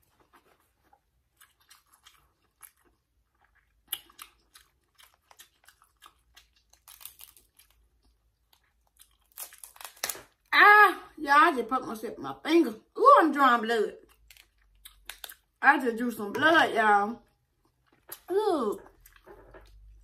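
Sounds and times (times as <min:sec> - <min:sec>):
chewing: 0:00.0 - 0:09.6, 0:17.3 - 0:20.0
crab shell crunching: 0:01.4 - 0:10.5, 0:14.1 - 0:15.6.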